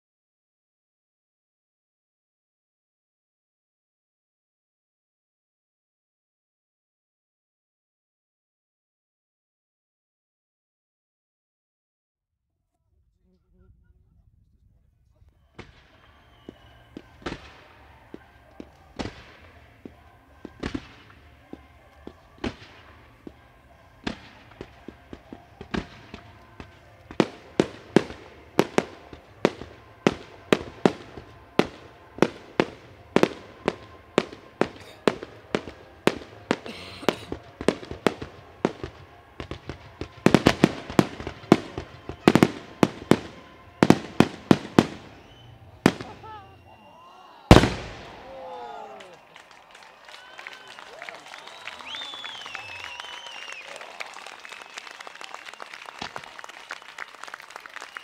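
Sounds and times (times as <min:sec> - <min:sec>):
fireworks banging: 0:15.4 - 0:46.7, 0:47.5 - 0:48.4.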